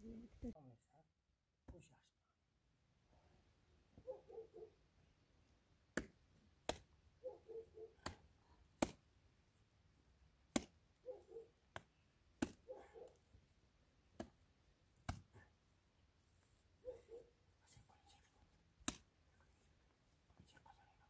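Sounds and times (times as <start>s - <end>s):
wet mud slapped onto wall: 5.9s - 6.9s, 8.0s - 9.1s, 10.4s - 10.8s, 11.7s - 12.6s, 14.1s - 14.4s, 15.0s - 15.3s, 18.8s - 19.1s.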